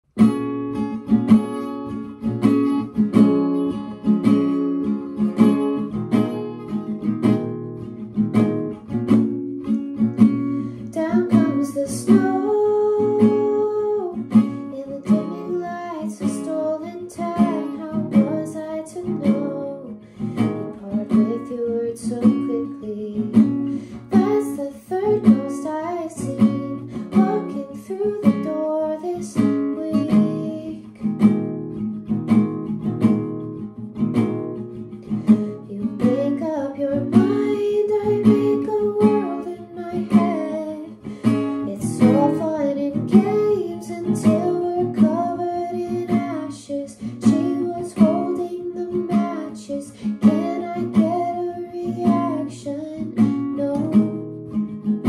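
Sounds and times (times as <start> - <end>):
acoustic guitar strumming: 0.1 - 55.0
woman singing: 9.9 - 31.4, 35.0 - 55.0.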